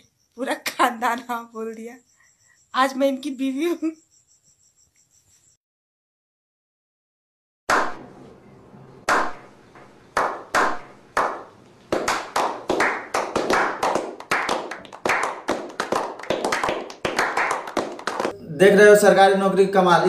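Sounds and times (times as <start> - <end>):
group clapping: 9.1 - 9.4, 10.2 - 18.4.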